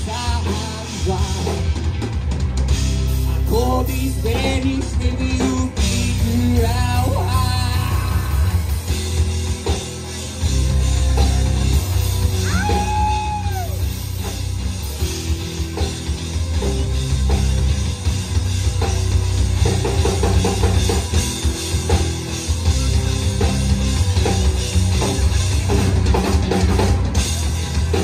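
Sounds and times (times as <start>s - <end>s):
instrumental rock band playing: 0.0s - 28.0s.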